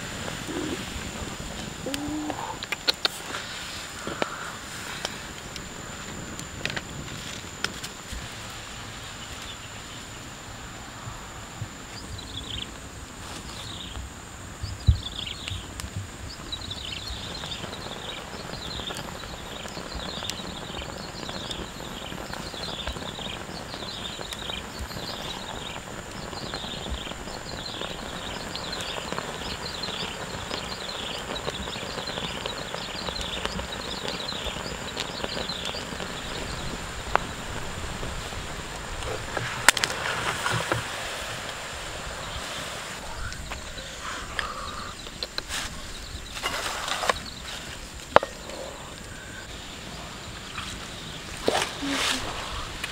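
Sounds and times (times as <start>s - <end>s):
wood fire crackling: 0.0s - 52.9s
bird calling in falling notes: 1.8s - 3.1s.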